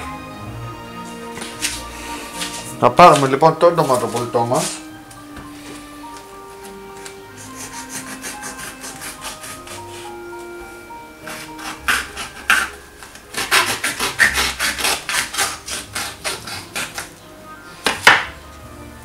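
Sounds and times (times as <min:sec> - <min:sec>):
soft background music: 0:00.0 - 0:19.0
scraping strokes over food: 0:07.3 - 0:10.3, 0:11.2 - 0:17.1.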